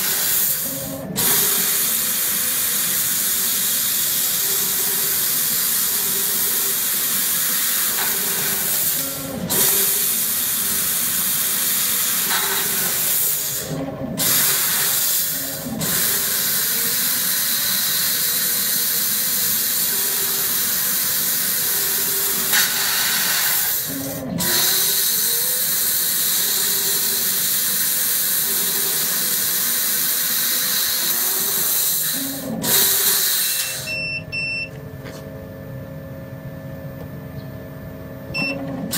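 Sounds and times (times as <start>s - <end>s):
laser cutter gas jet hissing: 0.0s - 34.0s
machine head low whir: 0.0s - 38.9s
short beeps: 33.8s - 34.8s, 38.3s - 38.7s.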